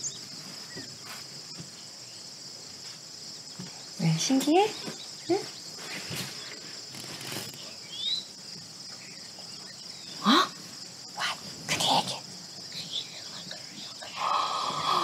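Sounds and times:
insects chirping: 0.0s - 15.0s
soft breathy sounds: 10.2s - 15.0s.

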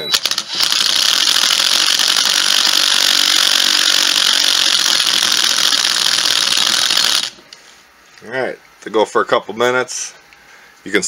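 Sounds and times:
power drill running: 0.0s - 7.4s.

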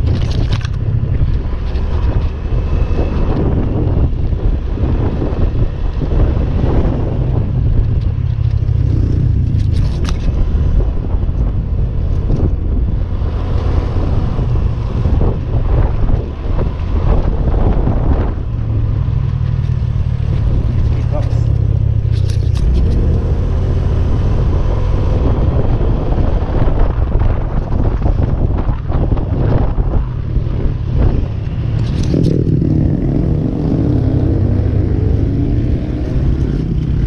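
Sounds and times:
wind rumble on microphone: 0.0s - 37.0s.

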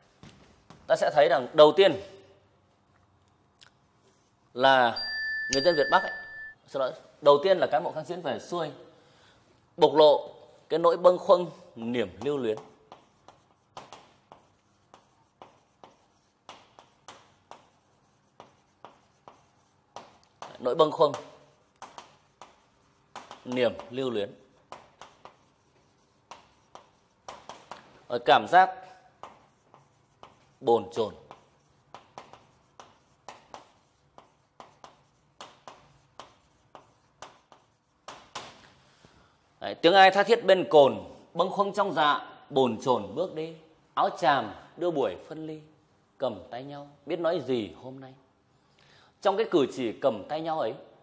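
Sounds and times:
chalk tapping and scratching on board: 11.0s - 39.0s.

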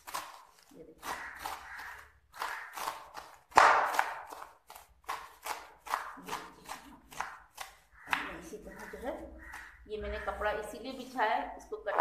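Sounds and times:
knife chopping on wooden board: 1.0s - 9.8s.

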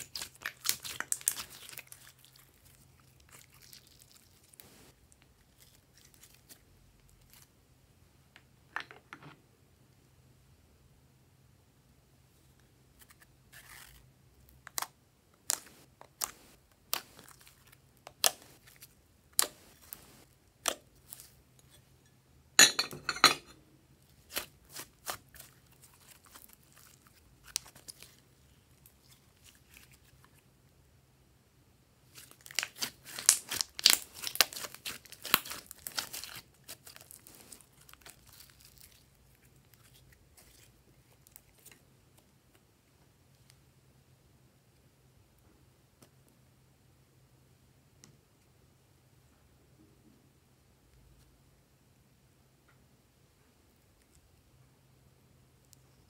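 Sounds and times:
slime popping and crackling: 0.0s - 4.8s, 14.6s - 20.9s, 32.1s - 40.6s.

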